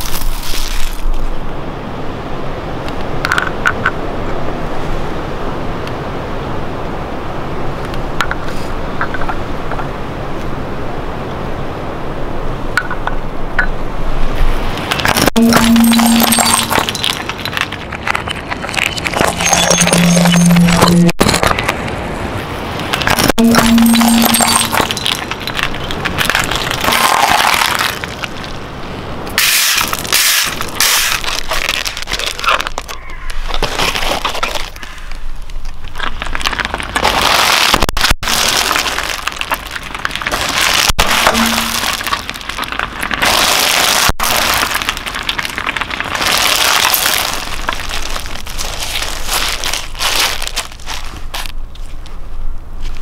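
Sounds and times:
objects crushed under car tyre: 14.9s - 20.5s, 22.9s - 28.5s, 29.4s - 34.9s, 35.9s - 51.5s.

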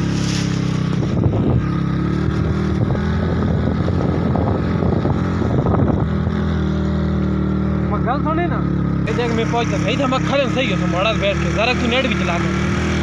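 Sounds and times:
motorcycle engine running: 0.0s - 13.0s
wind buffeting microphone: 0.8s - 7.2s.

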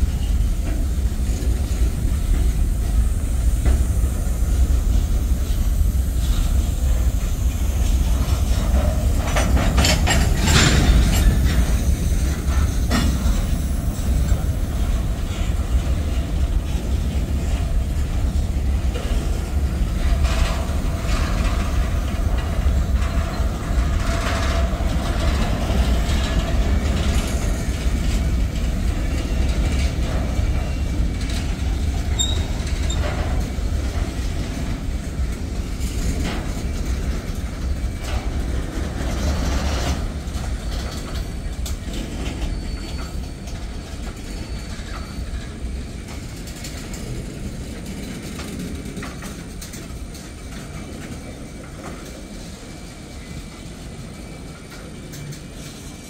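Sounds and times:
train wheels rumbling on rail: 0.0s - 56.0s
wheels clanking over rail joints: 0.0s - 56.0s.

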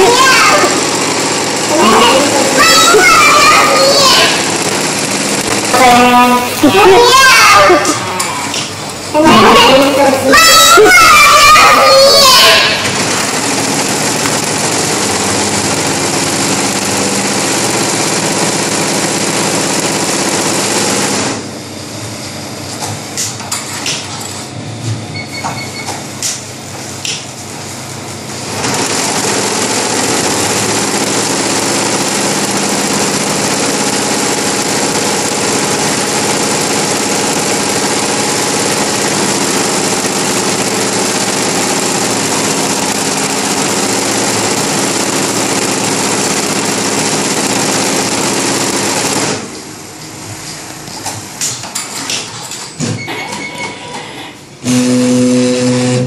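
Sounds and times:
embroidery machine stitching: 0.0s - 21.5s, 26.2s - 52.5s, 54.7s - 56.0s
scattered clicks: 4.6s - 5.8s, 25.8s - 27.3s.

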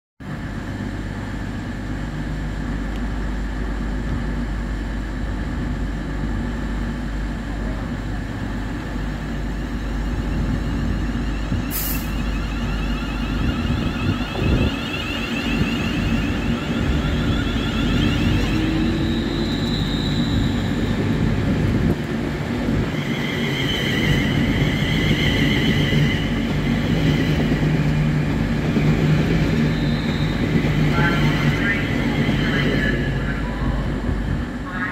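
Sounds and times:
train low hum: 0.2s - 34.9s
train traction whine rising: 0.2s - 34.9s
air hiss: 11.7s - 12.2s.

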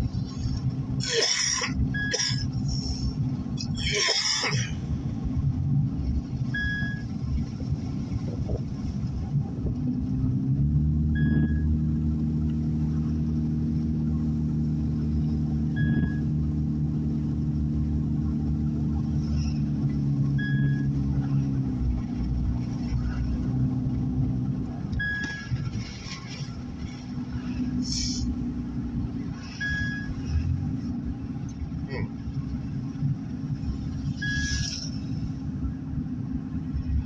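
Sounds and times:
car engine and road drone: 0.0s - 37.0s
short high beep: 6.6s - 7.1s, 11.2s - 11.7s, 25.0s - 25.5s, 29.5s - 30.2s, 34.1s - 34.9s.

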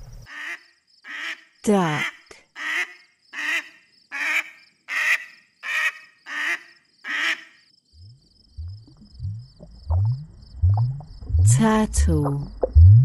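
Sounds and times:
duck quacking: 2.0s - 7.5s.

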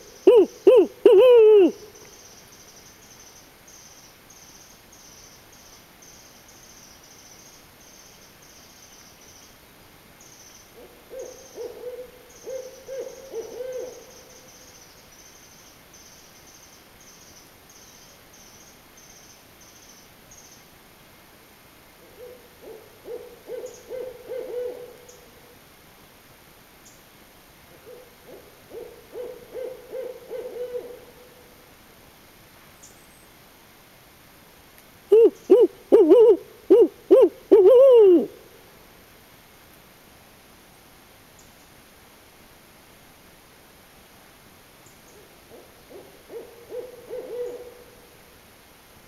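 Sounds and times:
owl hooting: 0.1s - 2.1s, 10.8s - 14.4s, 22.1s - 25.2s, 27.8s - 31.3s, 35.1s - 38.5s, 45.5s - 48.0s.

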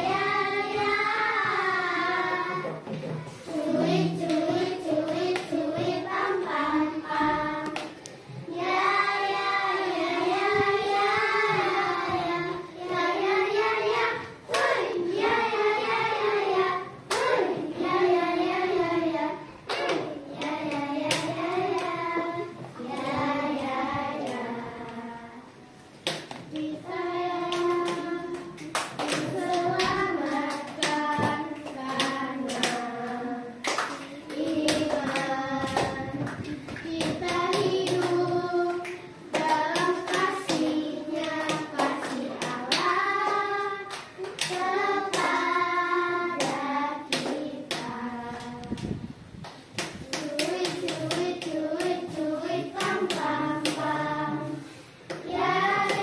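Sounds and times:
girls singing together: 0.0s - 56.0s
hand claps: 7.1s - 8.2s, 14.0s - 14.9s, 17.1s - 17.6s, 19.7s - 22.0s, 26.0s - 45.6s, 46.4s - 54.4s, 55.1s - 56.0s.

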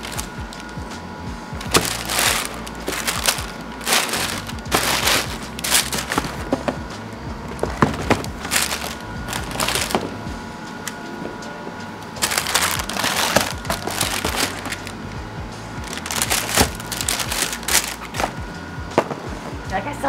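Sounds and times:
tissue paper crinkling: 0.0s - 0.8s, 1.6s - 6.8s, 7.5s - 10.2s, 12.2s - 15.0s, 15.8s - 18.4s
steady low hum: 0.0s - 20.0s
boxes knocking: 1.6s - 10.3s, 12.2s - 14.9s, 15.8s - 19.3s.

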